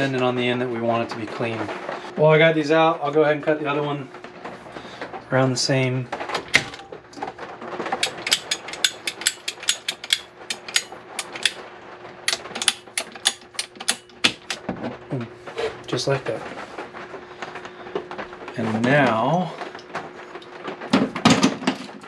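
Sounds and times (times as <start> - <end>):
ratcheting pipe cutter clicking: 8.0 - 11.6, 12.3 - 14.6.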